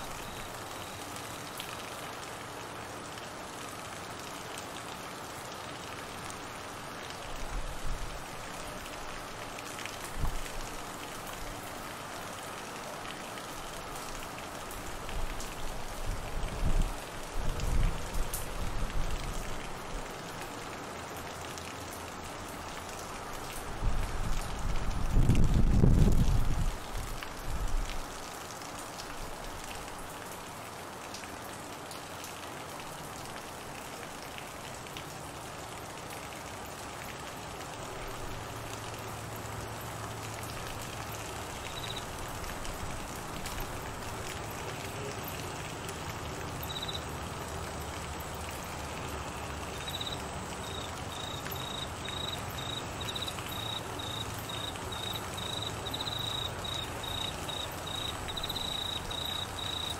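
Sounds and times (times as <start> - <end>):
steady rain on trees and water: 0.0 - 59.9
cricket chirping: 41.7 - 42.0, 46.6 - 47.1, 49.8 - 59.9.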